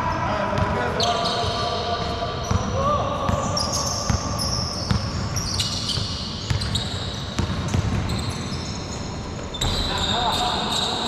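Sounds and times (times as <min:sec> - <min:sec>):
sneakers squeaking: 0:00.3 - 0:11.0
basketball bouncing on hard court: 0:01.4 - 0:08.8.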